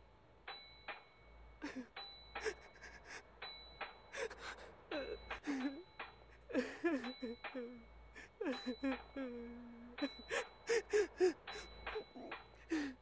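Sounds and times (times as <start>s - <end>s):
breathy human gasps: 12.6s - 13.0s.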